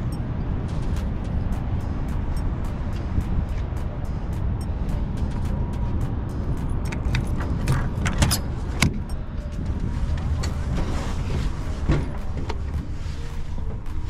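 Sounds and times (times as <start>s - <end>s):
truck engine rumbling: 0.0s - 14.0s.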